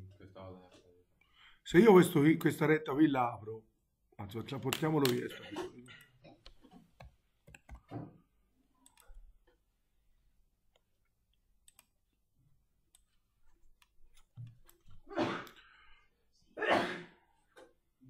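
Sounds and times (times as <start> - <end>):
computer mouse clicks: 6.4 - 7.9, 8.8 - 9.2, 10.7 - 12.0.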